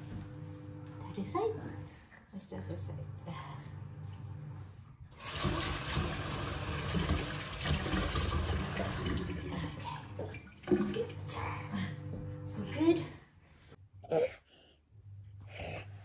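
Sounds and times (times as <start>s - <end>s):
hands being washed: 5.2s - 11.2s.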